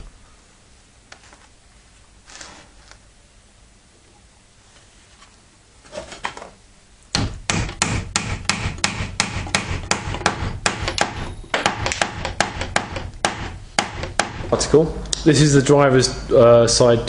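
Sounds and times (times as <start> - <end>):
hammer knocking wooden dowels: 7.2 - 14.6.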